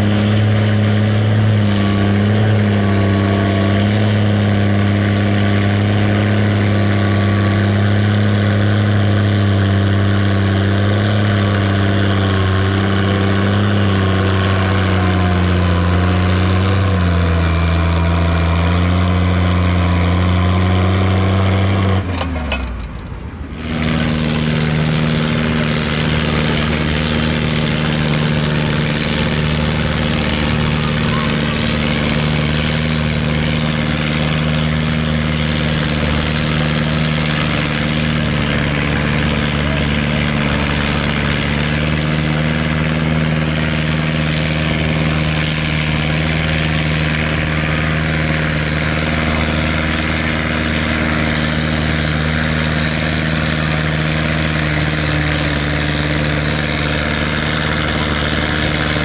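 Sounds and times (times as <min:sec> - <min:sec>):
tractor engine running steadily: 0:00.0 - 0:59.0
higher-pitched engine note: 0:23.6 - 0:59.0.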